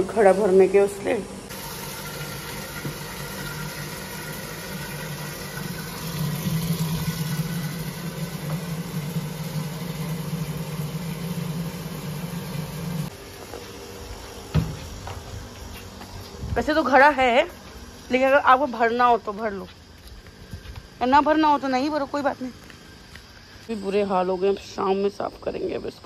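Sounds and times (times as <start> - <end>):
motor hum: 1.3 - 18.2.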